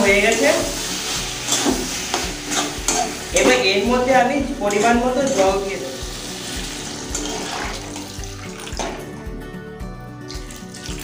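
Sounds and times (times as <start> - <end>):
background music with steady beat: 0.0 - 11.0
water pouring into gravy: 6.5 - 8.9, 10.3 - 11.0.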